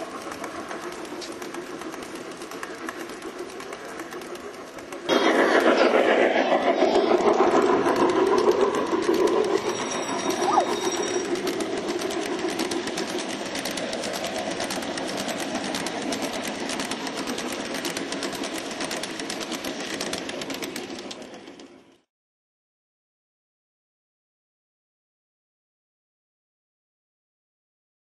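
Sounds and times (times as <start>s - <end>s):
model train wheels clicking on track: 0.0s - 22.1s
short rising whistle: 9.5s - 11.4s.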